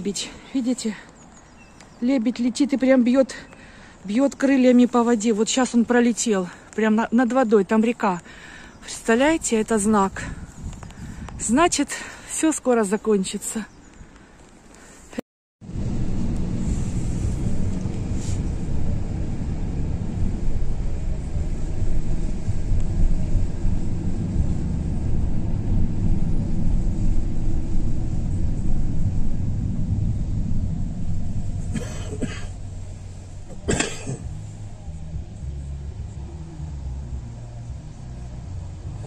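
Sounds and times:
road and engine rumble in car: 15.6s - 39.0s.

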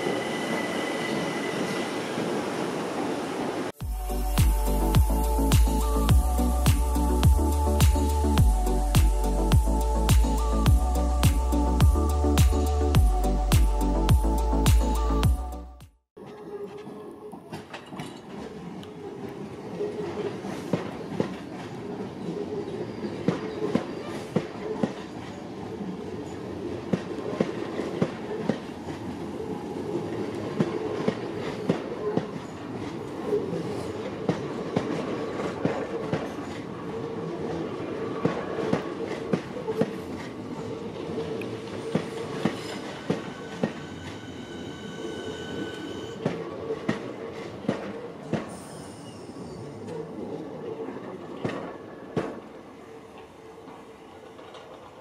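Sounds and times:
electric train rumbling past: 0.0s - 15.8s, 18.4s - 55.0s
thin high whine: 42.7s - 46.2s
wheels clicking over rail joints: 53.2s - 55.0s.

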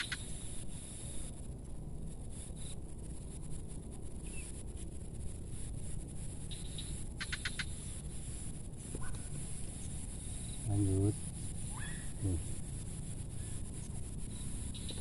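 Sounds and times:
small bird chirping: 0.0s - 1.3s, 4.2s - 4.7s, 5.4s - 15.0s
steady low rumble: 0.0s - 15.0s.

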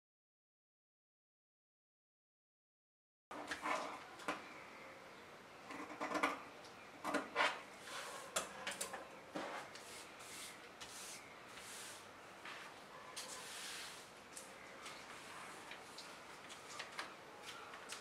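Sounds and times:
paper sliding on wooden table: 9.4s - 14.1s.

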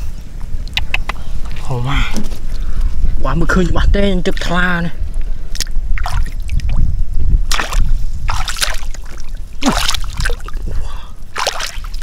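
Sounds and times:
steady low rumble: 0.0s - 12.0s
water splashing and sloshing: 5.5s - 6.8s, 7.5s - 12.0s.

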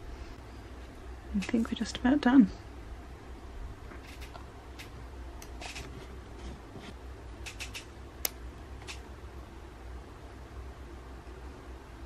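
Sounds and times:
low steady hum: 0.0s - 12.0s
sharp click: 7.4s - 9.0s.

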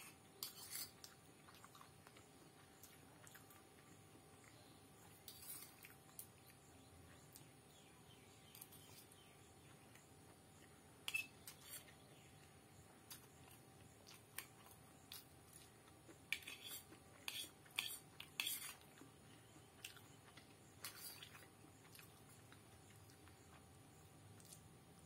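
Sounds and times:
fork scraping ceramic plate: 0.0s - 1.1s, 5.2s - 5.8s, 11.0s - 12.0s, 16.3s - 18.8s.

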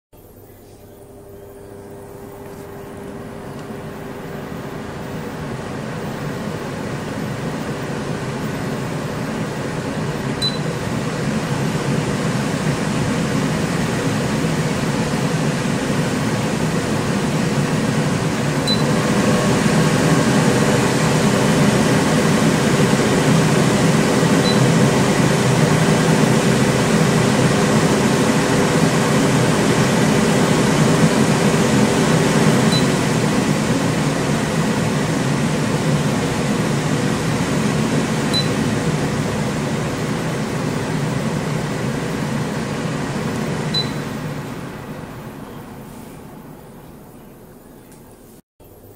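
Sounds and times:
extractor fan running: 0.2s - 48.9s
short high blips: 43.7s - 44.2s.

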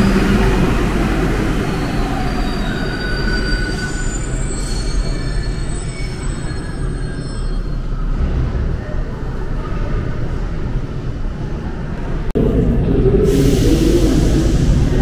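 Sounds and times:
metro train rumble: 0.0s - 15.0s
thin high squealing: 1.6s - 8.0s.

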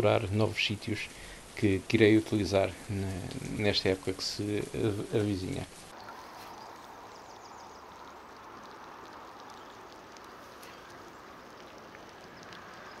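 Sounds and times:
background hiss: 0.0s - 13.0s
faint ticks: 2.9s - 3.6s, 7.6s - 13.0s.

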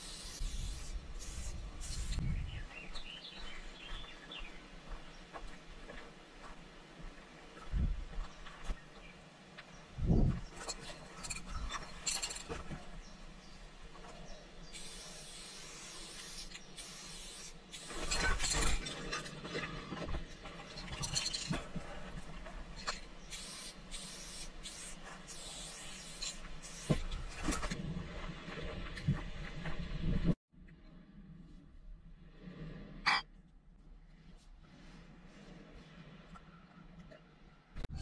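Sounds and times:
spray paint can hissing: 0.0s - 2.2s, 14.7s - 18.3s, 23.3s - 27.1s.

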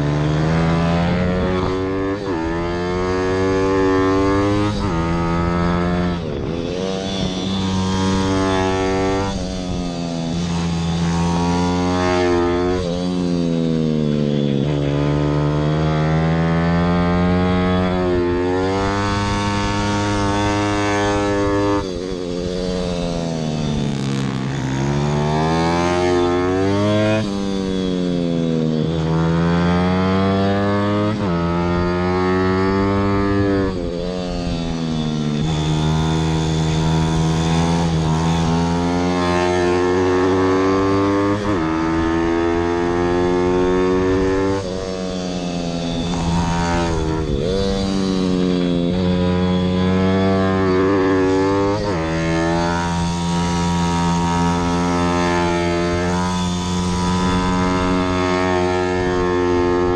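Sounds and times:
pit bike engine revving: 0.0s - 59.9s.

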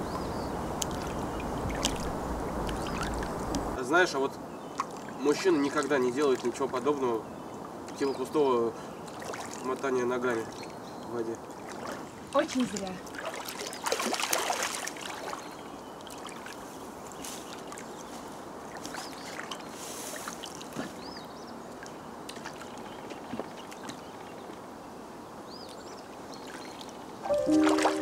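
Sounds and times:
feet splashing in water: 0.8s - 3.8s, 9.1s - 9.7s, 11.5s - 18.0s, 18.6s - 21.0s, 22.3s - 24.3s
short high chirps: 27.2s - 28.0s.

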